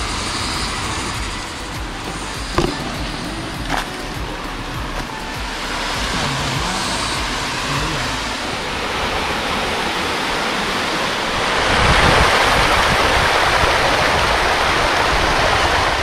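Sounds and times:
stream rushing over rocks: 0:00.0 - 0:16.0.

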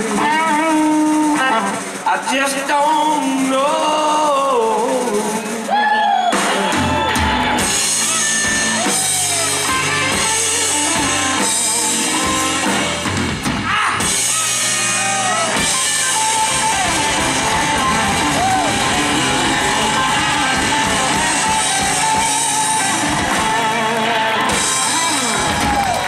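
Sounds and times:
bass guitar: 0:00.0 - 0:26.0
drum kit: 0:00.0 - 0:26.0
electric guitar lead: 0:05.6 - 0:26.0.

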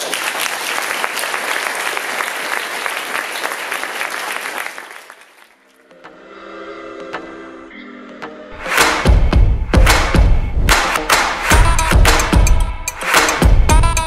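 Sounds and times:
audience applauding: 0:00.0 - 0:05.6
music with held notes: 0:06.9 - 0:14.0.

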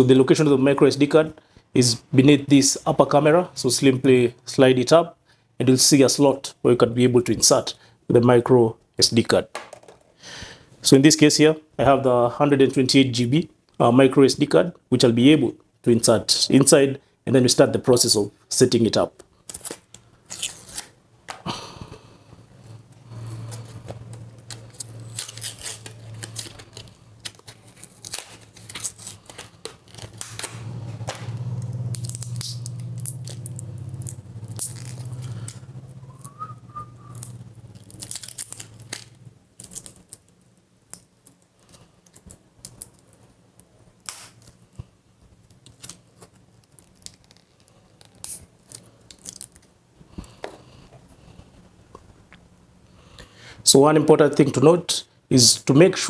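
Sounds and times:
low steady hum: 0:10.4 - 0:56.0
plastic packaging crinkling and tearing: 0:19.3 - 0:21.0, 0:23.6 - 0:31.3, 0:31.9 - 0:35.6, 0:37.1 - 0:43.2, 0:45.3 - 0:49.8.

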